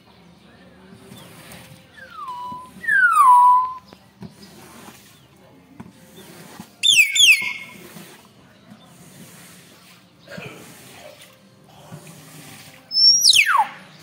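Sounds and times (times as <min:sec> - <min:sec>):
bird whistling: 0:01.9 - 0:04.0, 0:06.8 - 0:07.8, 0:12.9 - 0:14.0.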